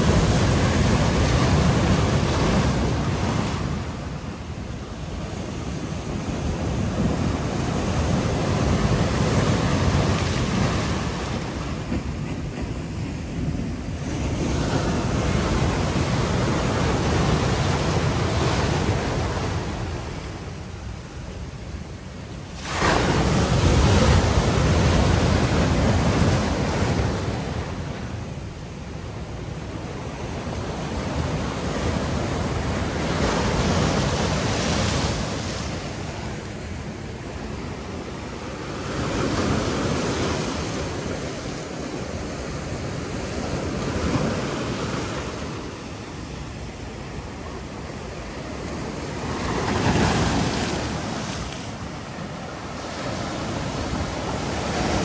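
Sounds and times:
surf breaking on rocks: 22.5s - 27.6s.

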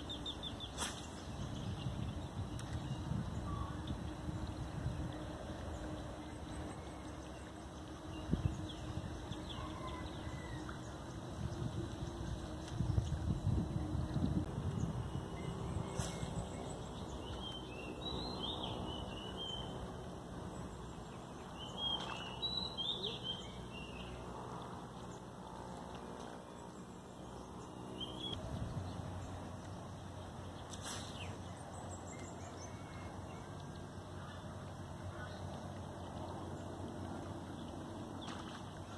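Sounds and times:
wind rumble on microphone: 0.2s - 7.1s, 7.9s - 20.8s, 28.2s - 29.6s.

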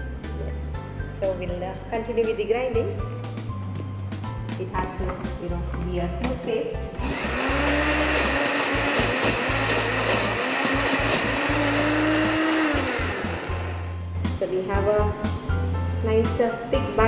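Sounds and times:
electric mixer grinder running: 7.0s - 14.1s.

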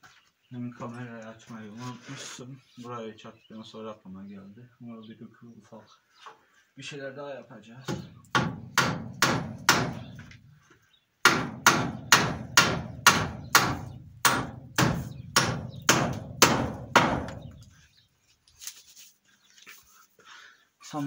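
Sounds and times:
hammer driving nails into wood: 7.9s - 10.2s, 11.2s - 17.5s.

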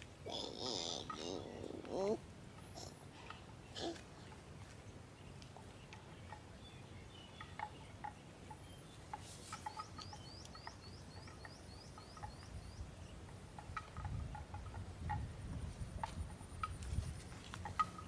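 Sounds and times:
faint insect hum: 0.0s - 18.0s
bird chirping: 5.1s - 14.2s.

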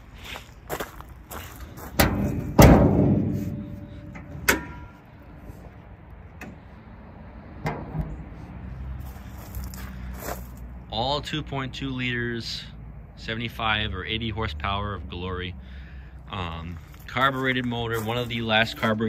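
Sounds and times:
thud: 2.0s - 5.0s
metal hood clunking: 2.0s - 5.7s, 7.6s - 8.4s
sharp ringing metal clank: 2.6s - 5.2s.

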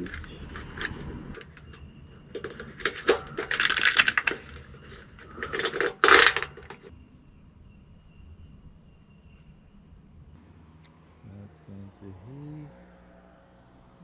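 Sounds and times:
plastic cable tie ratcheting: 0.0s - 6.9s.

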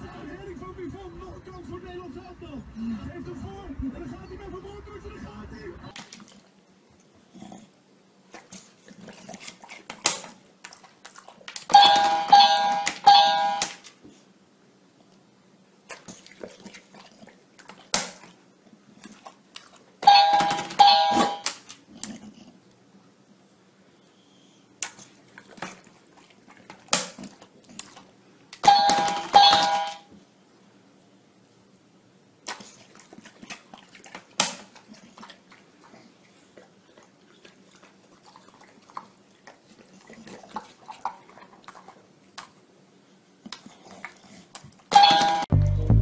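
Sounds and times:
electronic chime beeping tones: 11.8s - 13.7s, 20.1s - 21.4s, 28.7s - 30.0s, 45.0s - 46.0s.

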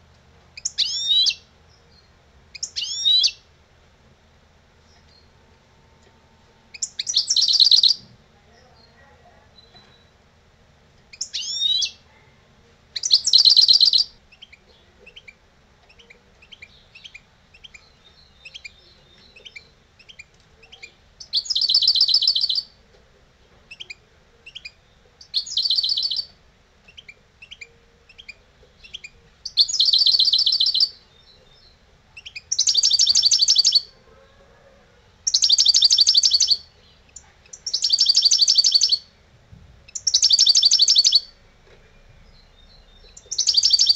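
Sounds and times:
bird singing trilled phrases: 0.6s - 3.4s, 6.7s - 8.0s, 11.1s - 12.0s, 13.0s - 22.8s, 23.7s - 33.9s, 35.2s - 39.2s, 39.9s - 41.4s, 42.0s - 43.9s
soft bird twitters: 2.0s - 3.4s, 6.7s - 8.0s, 11.1s - 12.0s, 13.0s - 22.8s, 23.7s - 34.0s, 35.2s - 39.1s, 39.9s - 41.4s, 42.0s - 43.9s.

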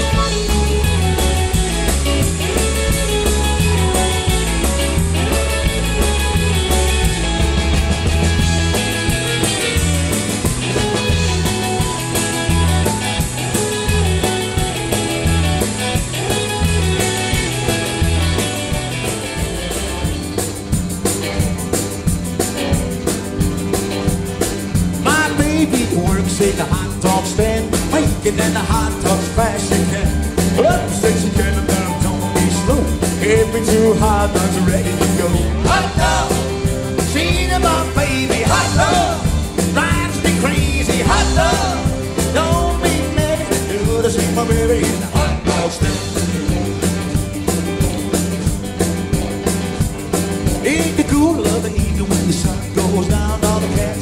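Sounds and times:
rock and roll band playing: 0.0s - 54.0s.

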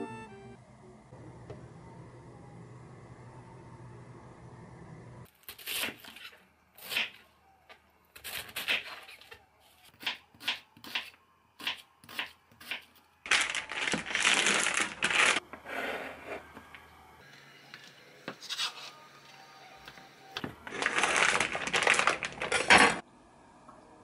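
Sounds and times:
plastic package crinkling: 13.3s - 15.4s, 20.6s - 23.0s.

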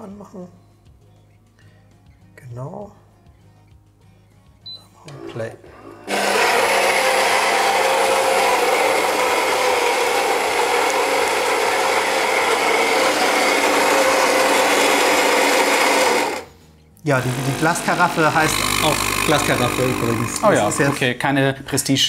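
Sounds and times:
coffee grinder grinding beans: 5.7s - 21.1s.

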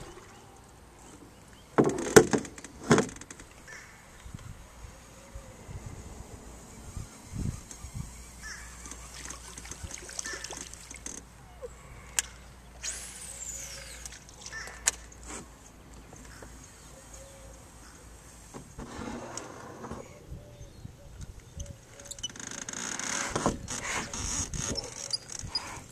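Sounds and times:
line whirring off reel: 12.8s - 14.2s.

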